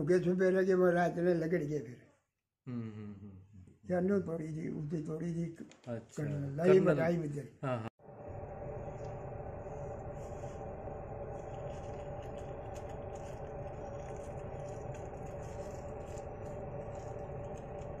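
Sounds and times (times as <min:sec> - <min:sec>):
faint steady hum: 0:08.0 - 0:18.0
low rumble: 0:08.0 - 0:18.0.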